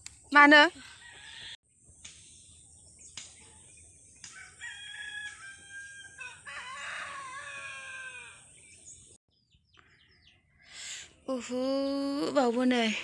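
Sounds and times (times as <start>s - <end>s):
rooster crowing: 0.9s - 1.6s, 4.3s - 8.6s.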